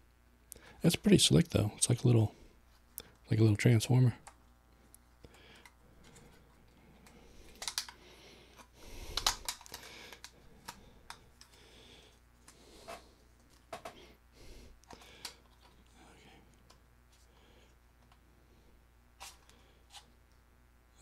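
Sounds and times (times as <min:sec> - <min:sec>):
plastic clicks and rustles: 0:07.0 - 0:08.0, 0:08.6 - 0:11.6.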